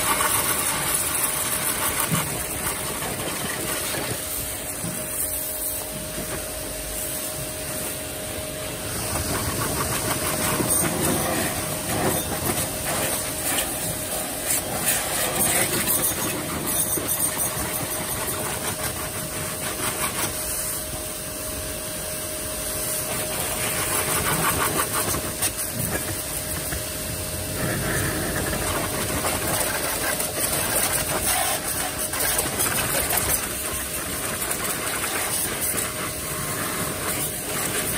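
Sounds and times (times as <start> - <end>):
pressure washer pump hum: 0.0 - 37.9
water jet hissing: 0.0 - 37.9.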